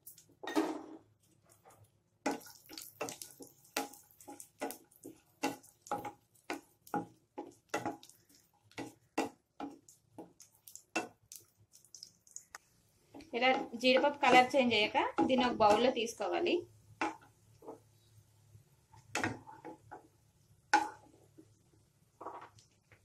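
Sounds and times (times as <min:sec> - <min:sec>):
nuts frying in fat: 0:00.0 - 0:00.5, 0:01.1 - 0:23.0
wooden spatula scraping a pan: 0:01.6 - 0:11.2, 0:13.1 - 0:16.0.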